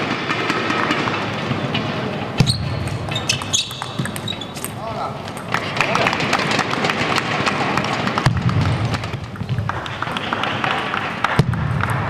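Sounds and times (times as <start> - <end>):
crowd chattering: 0.9 - 11.3
spectators clapping: 5.3 - 12.0.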